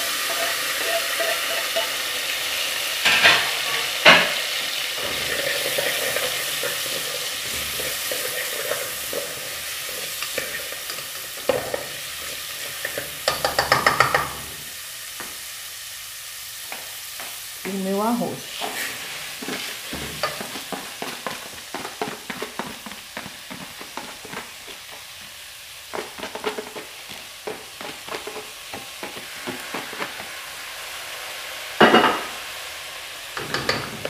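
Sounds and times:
vegetables sizzling in oil: 0.0s - 34.0s
wooden spoon knocking on pot: 13.2s - 14.4s, 19.9s - 24.5s.

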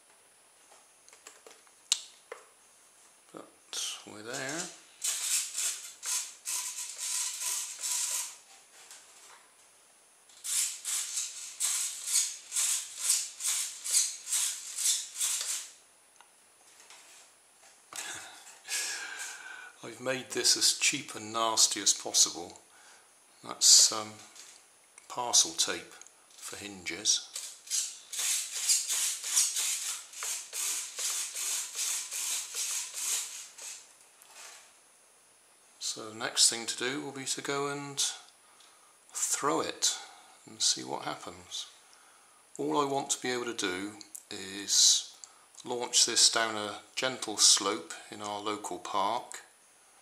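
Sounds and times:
small servos whirring: 4.3s - 8.5s, 10.3s - 15.8s, 27.3s - 34.7s.

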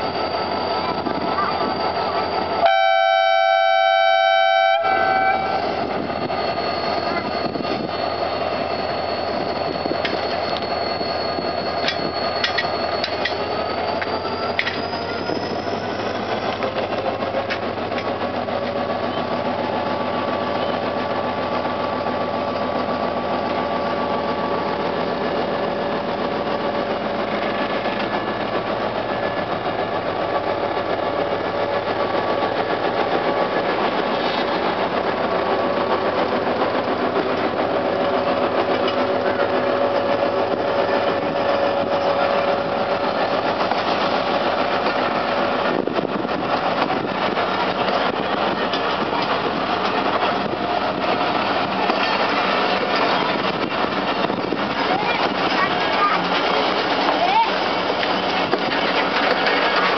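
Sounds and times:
thin high squeal: 0.0s - 2.6s, 4.9s - 17.0s
diesel locomotive engine rolling past: 0.0s - 59.9s
locomotive horn blast: 2.6s - 5.7s.

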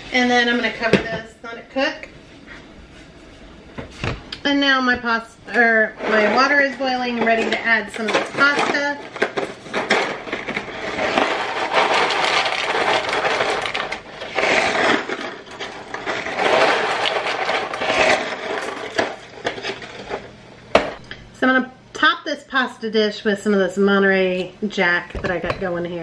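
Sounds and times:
dry pasta pouring into pot: 10.9s - 19.4s.

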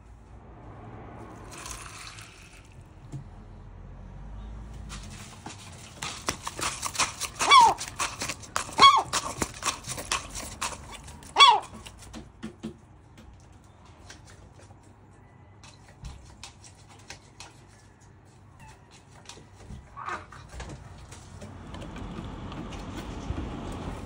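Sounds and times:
gull calls: 7.4s - 7.8s, 11.4s - 11.7s.

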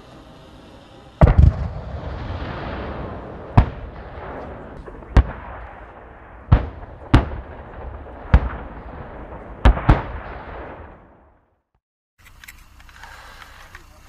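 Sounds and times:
distant cannon fire: 1.2s - 11.6s.

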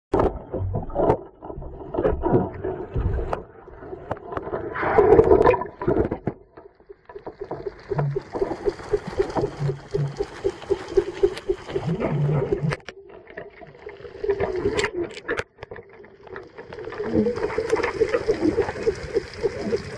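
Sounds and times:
underwater rushing burst: 7.1s - 12.8s, 16.5s - 19.9s
underwater knocks and handling clicks: 7.4s - 11.8s, 14.7s - 16.8s.

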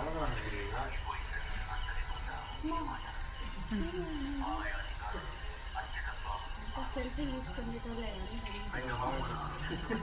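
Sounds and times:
crickets chirping: 0.0s - 10.0s
faint voices talking: 0.0s - 10.0s.

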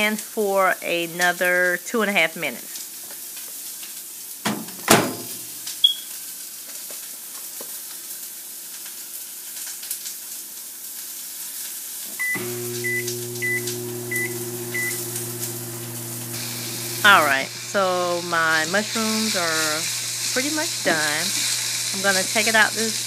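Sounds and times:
mushrooms sizzling in a pan: 2.6s - 4.5s, 5.2s - 23.0s
microwave door banging shut: 4.5s - 5.4s
microwave humming: 4.9s - 5.4s, 12.1s - 23.0s
microwave beeps: 5.8s - 6.1s, 12.2s - 17.6s.

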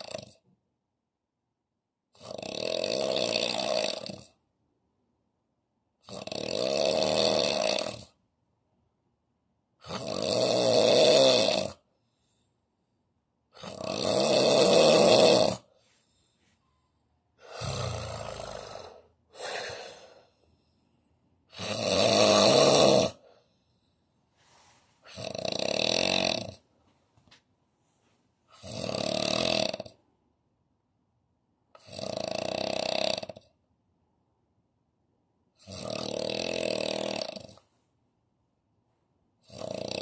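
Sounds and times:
man snoring: 0.0s - 0.4s, 2.1s - 4.4s, 6.0s - 8.2s, 9.8s - 11.9s, 13.5s - 15.7s, 17.4s - 20.4s, 21.5s - 23.4s, 25.0s - 26.7s, 28.5s - 30.0s, 31.8s - 33.5s, 35.6s - 37.6s, 39.4s - 40.0s.

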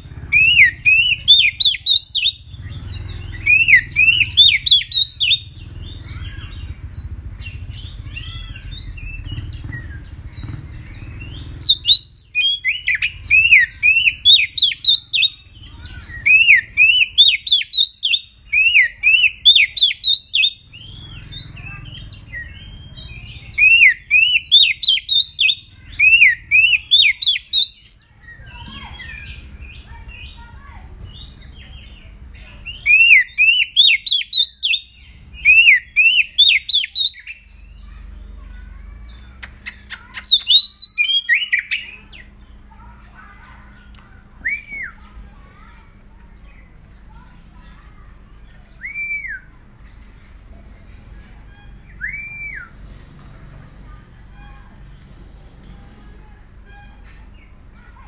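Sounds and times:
bird singing loud chirps: 0.0s - 45.8s
soft bird twittering: 0.0s - 58.0s.

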